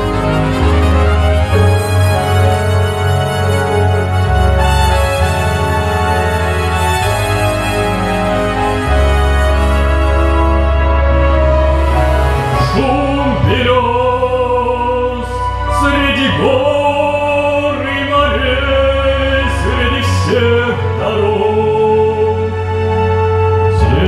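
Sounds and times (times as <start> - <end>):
instrumental accompaniment: 0.0 - 24.0
man singing with vibrato: 12.4 - 23.0, 23.6 - 24.0.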